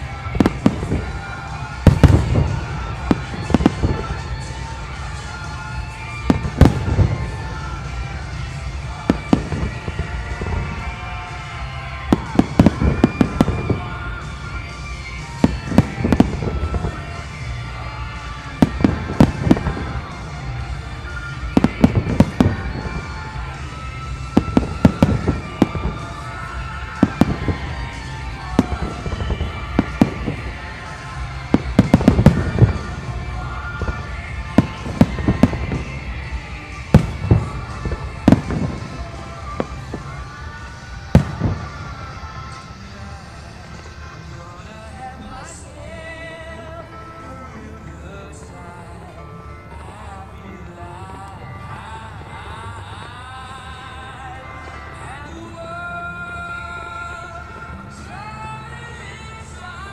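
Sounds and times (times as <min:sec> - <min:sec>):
firework shells bursting: 0:18.1 - 0:42.9.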